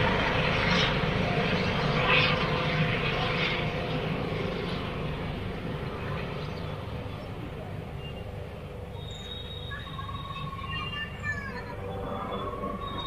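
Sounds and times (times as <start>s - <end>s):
helicopter flying overhead: 0.0s - 13.0s.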